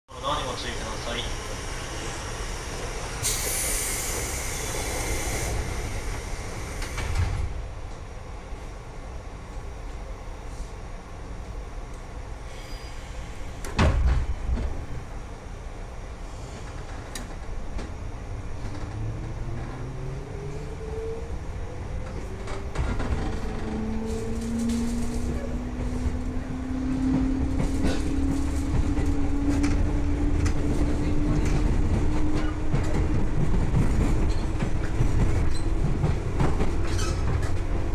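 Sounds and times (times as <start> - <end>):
train low hum: 0.1 - 37.9
train door thud: 13.6 - 14.8.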